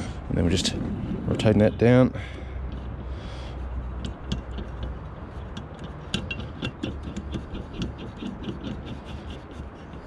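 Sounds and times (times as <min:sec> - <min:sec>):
metal tool clicking and scraping: 0:03.9 - 0:10.0.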